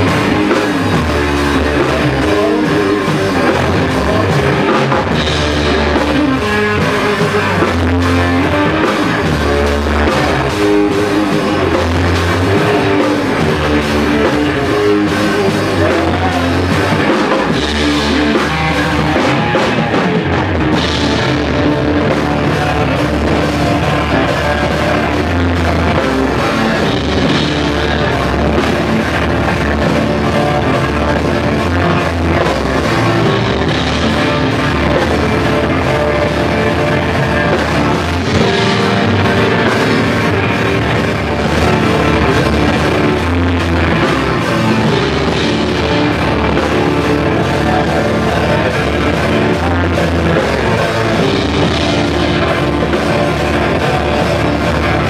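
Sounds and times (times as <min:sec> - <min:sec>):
drum kit: 0:00.0 - 0:55.0
electric guitar: 0:00.0 - 0:55.0
fretless bass: 0:00.0 - 0:55.0
keyboards: 0:00.0 - 0:55.0.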